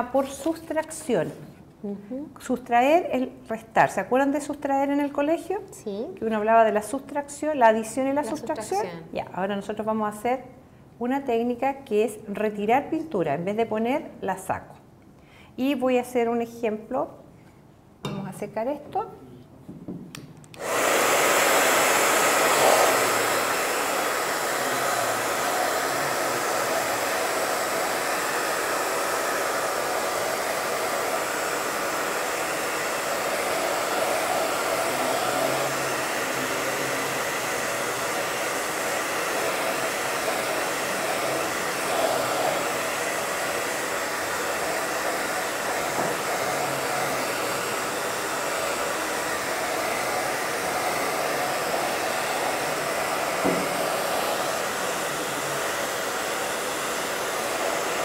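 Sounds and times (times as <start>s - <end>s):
hair dryer blowing: 7.6s - 8.8s, 20.6s - 58.0s.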